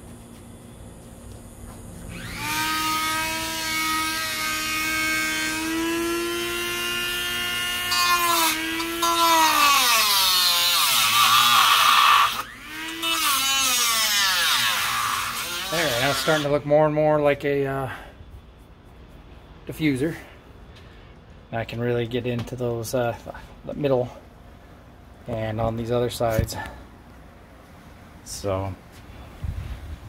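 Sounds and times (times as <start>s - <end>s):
power tool motor whine cutting: 2.0s - 16.6s.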